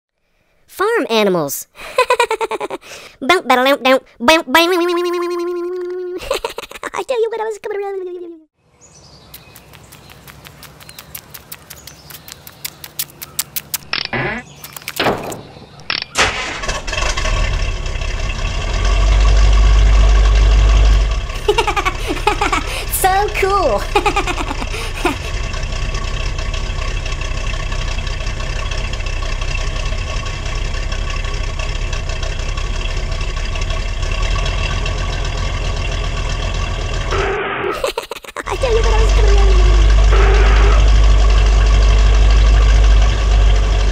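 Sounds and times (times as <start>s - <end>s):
small birds chirping: 8.6s - 16.0s
vehicle engine running: 16.4s - 37.7s, 38.5s - 43.9s.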